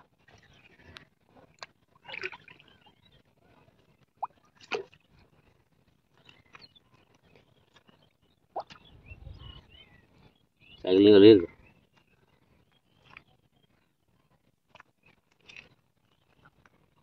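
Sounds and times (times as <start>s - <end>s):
water splashing: 2.0s - 2.7s, 4.2s - 5.0s
water dripping: 8.6s - 8.8s.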